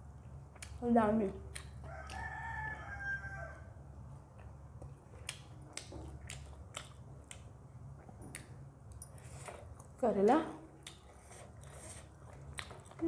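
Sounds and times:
wet eating clicks: 1.4s - 2.3s, 5.2s - 7.5s
rooster crowing: 1.9s - 3.8s.

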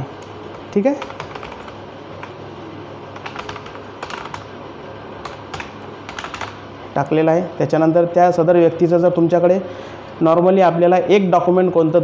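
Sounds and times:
low steady hum: 0.0s - 12.0s
computer keyboard key clicks: 0.2s - 2.4s, 3.2s - 4.5s, 5.2s - 6.6s.

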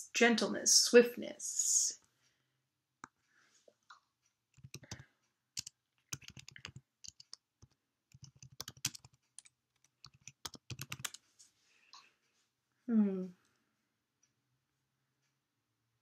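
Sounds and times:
typing on computer keyboard: 4.6s - 5.0s, 5.6s - 11.2s.

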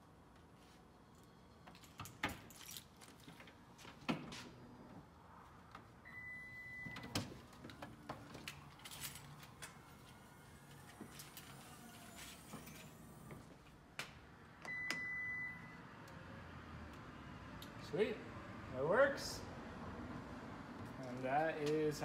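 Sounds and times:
single beep: 14.7s - 15.8s.

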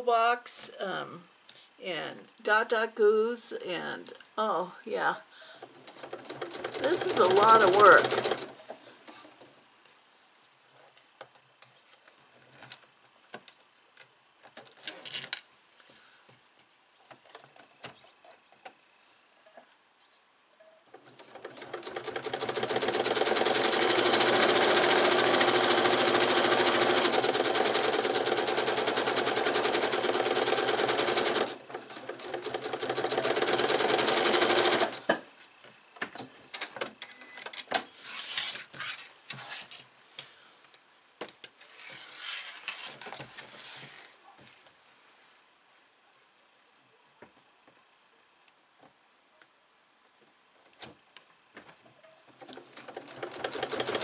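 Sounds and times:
sewing machine stitching: 5.8s - 8.6s, 20.9s - 35.1s, 52.4s - 54.0s.

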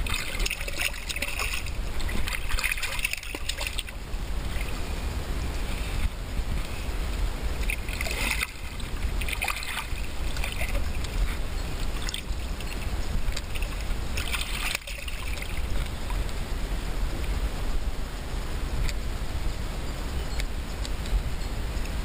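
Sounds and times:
water splashing from thrashing fish: 0.0s - 4.7s, 7.6s - 15.9s
low rumble of moving water: 0.0s - 22.0s.

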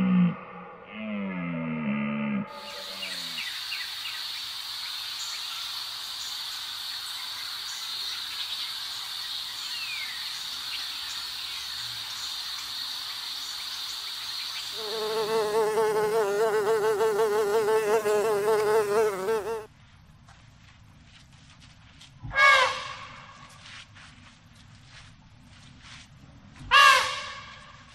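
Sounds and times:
high-pitched insect whine: 2.5s - 19.7s
bird chirp: 2.6s - 15.3s
honeybee buzzing close by: 14.8s - 19.7s.

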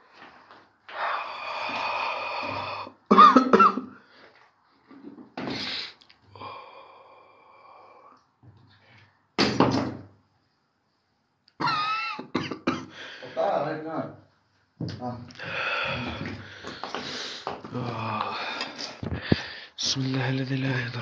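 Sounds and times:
man coughing and breathing hard: 3.0s - 4.0s, 11.6s - 13.0s.

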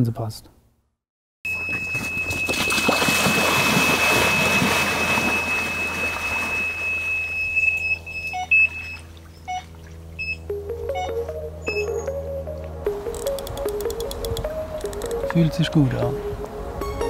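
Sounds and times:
bite alarm high tone: 1.5s - 12.4s
person wading splashing water: 2.2s - 7.3s.

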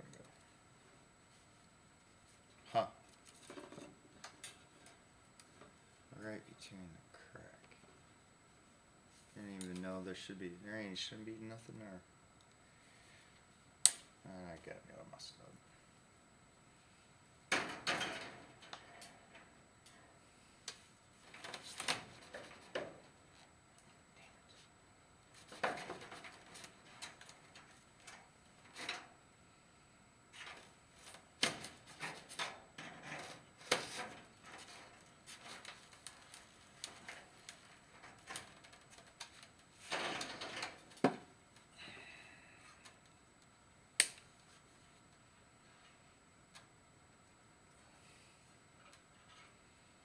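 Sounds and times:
wire snips cutting wire: 13.8s - 14.1s, 44.0s - 44.3s
wire mesh rustling: 30.3s - 41.0s.

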